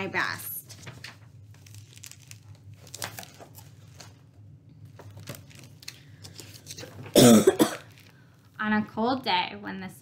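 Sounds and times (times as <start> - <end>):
book pages rustling: 0.6 - 7.2.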